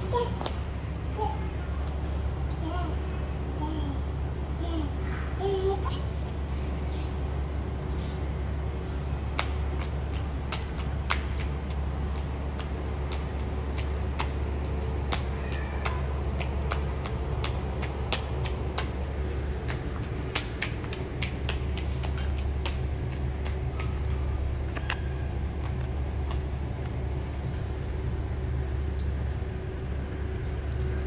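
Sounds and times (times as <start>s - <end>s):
steady low hum: 0.0s - 31.0s
small footsteps on tiled floor: 9.3s - 27.6s.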